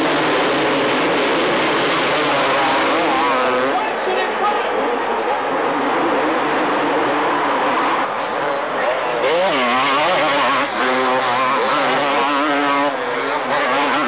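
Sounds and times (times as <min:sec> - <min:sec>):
motocross bike engines revving: 0:00.0 - 0:14.0.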